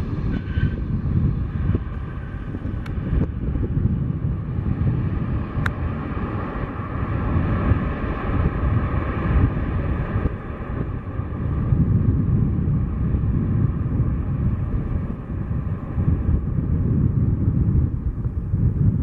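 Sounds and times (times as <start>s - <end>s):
jet engines rumbling: 0.0s - 19.0s
wind buffeting microphone: 0.0s - 19.0s.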